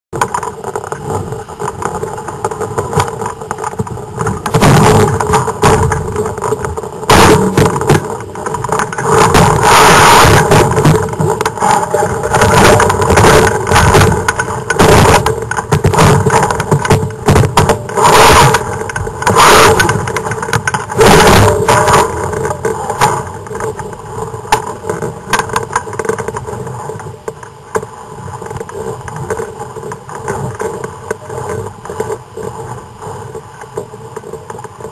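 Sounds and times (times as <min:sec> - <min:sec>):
wind rushing over microphone: 0:00.3 - 0:27.7.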